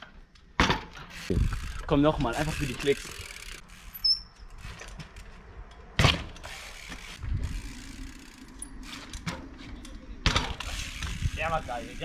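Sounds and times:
bike landing impact: 0.5 - 1.2, 6.0 - 7.2, 8.9 - 11.3
bike freewheel hub ratcheting: 1.0 - 5.4, 6.3 - 12.0.

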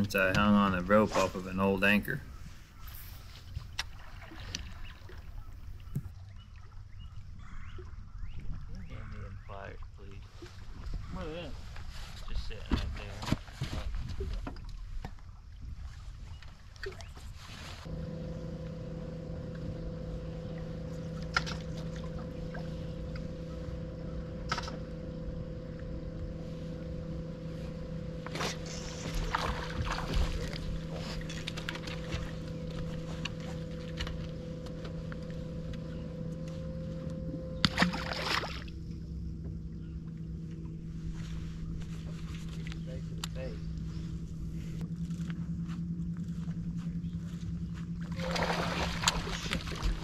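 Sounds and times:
electric motor humming: 17.8 - 50.0.

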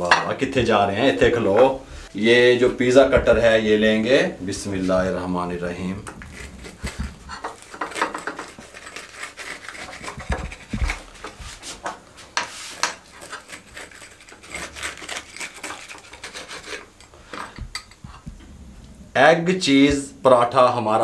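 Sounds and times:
pizza cutter scraping through bread: 6.2 - 11.8, 12.4 - 16.9.

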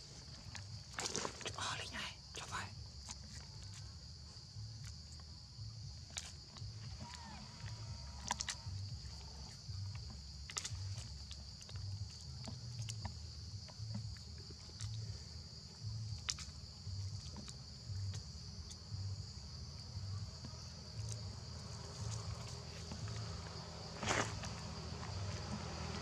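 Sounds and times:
low pulsing hum: 2.7 - 26.0.

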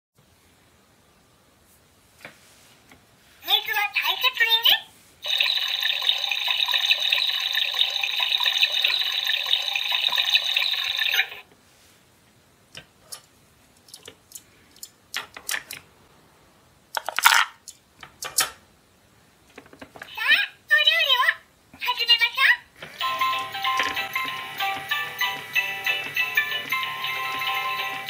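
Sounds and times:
toy stove electronic sizzle: 5.2 - 11.4, 22.9 - 28.0
plastic toy pieces clicking: 17.0 - 18.5.

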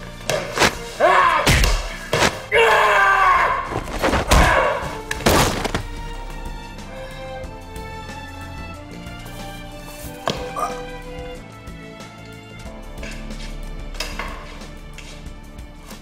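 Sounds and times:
background music: 0.0 - 16.0
man shouting and grunting: 1.0 - 1.9, 2.5 - 5.0
punch thuds: 1.5 - 2.5, 3.7 - 5.9.

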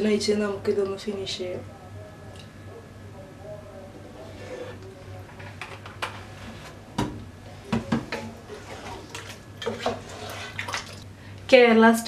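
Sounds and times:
wooden spatula stirring in pot: 8.0 - 11.0.

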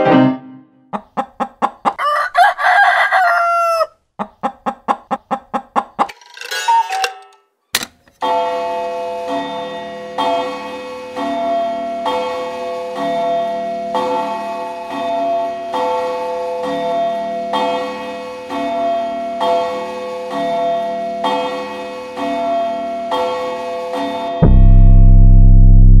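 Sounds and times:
gliding cluck-like calls: 0.9 - 2.0, 3.2 - 6.2.

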